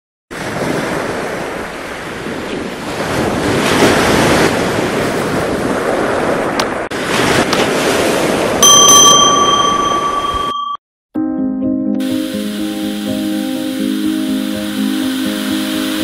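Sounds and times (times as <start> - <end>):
wind noise on microphone: 0.3 - 8.6
ocean surf: 0.3 - 10.6, 12.0 - 16.0.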